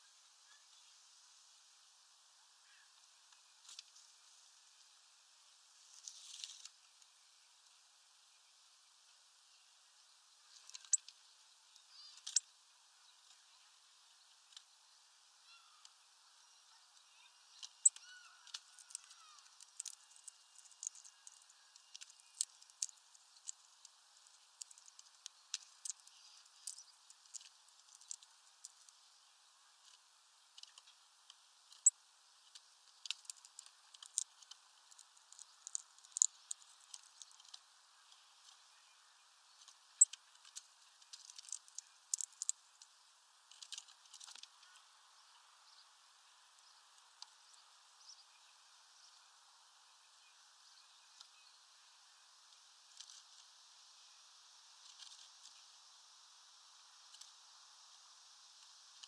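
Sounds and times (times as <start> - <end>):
birds ticking and clicking: 10.5 - 12.5, 17.2 - 29.2, 29.8 - 45.8.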